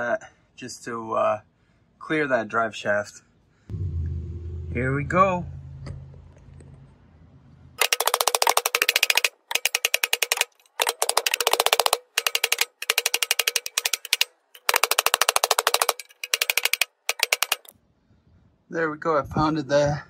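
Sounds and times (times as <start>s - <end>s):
hammer pounding metal: 3.7s - 6.6s, 7.8s - 17.7s.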